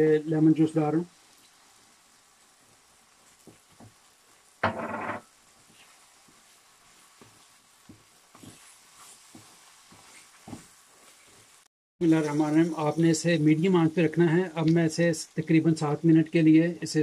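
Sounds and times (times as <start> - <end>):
faint sizzle: 0.0 - 17.0
spatula stirring in a wok: 1.6 - 11.7.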